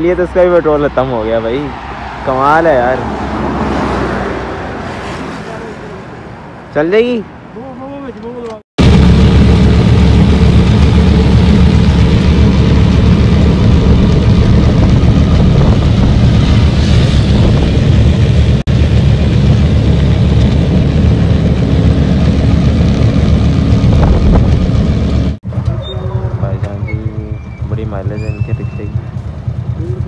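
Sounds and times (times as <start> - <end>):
wind noise on microphone: 8.8 - 26.0
motorcycle rickshaw engine running: 9.0 - 30.0.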